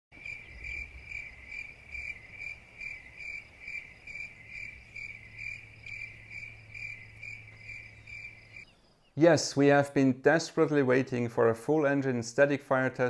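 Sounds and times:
cricket chirping: 0:00.2 - 0:09.0.

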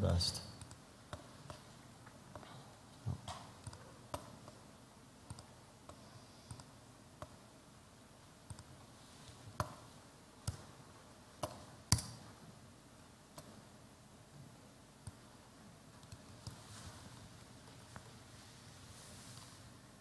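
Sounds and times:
faint computer clicks: 0:05.3 - 0:07.4.

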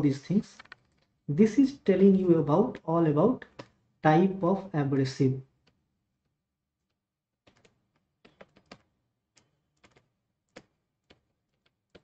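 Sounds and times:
stylus clicking on pen tablet: 0:00.5 - 0:01.3, 0:02.6 - 0:03.8, 0:05.5 - 0:12.0.

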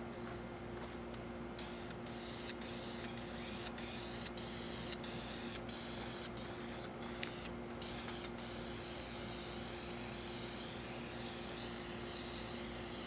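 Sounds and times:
faint background hum: 0:00.0 - 0:13.0
constant hiss: 0:00.1 - 0:13.0.

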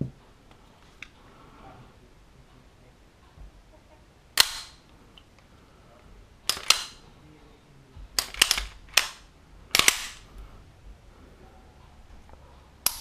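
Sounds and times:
pistol slide clacking: 0:04.4 - 0:04.8, 0:06.4 - 0:07.0, 0:08.2 - 0:10.3, 0:12.8 - 0:13.0.

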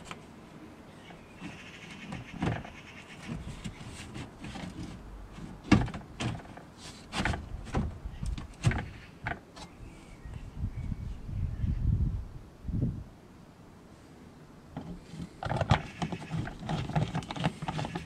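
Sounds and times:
plastic scraping and creaking: 0:01.0 - 0:09.8, 0:14.7 - 0:18.0
plastic panel knocking and clicking: 0:05.6 - 0:06.6, 0:14.8 - 0:18.0.

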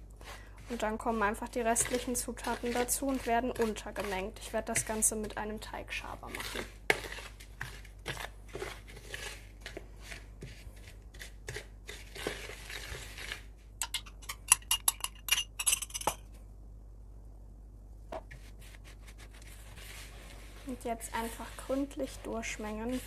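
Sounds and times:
spoon stirring dry flakes in a bowl: 0:00.1 - 0:16.2, 0:18.4 - 0:23.0
metal spoon clinking in a glass: 0:13.8 - 0:16.2.

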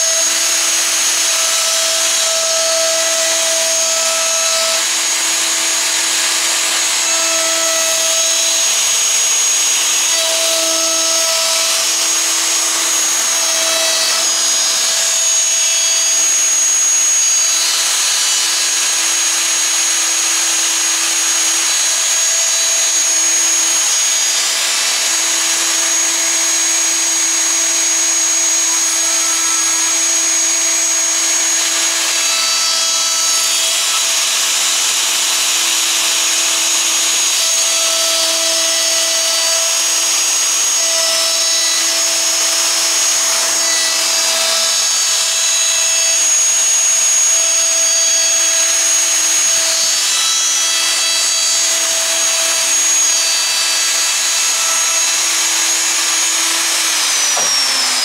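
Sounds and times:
router bit hissing in wood: 0:00.0 - 0:58.0
router motor whine: 0:00.0 - 0:58.0.

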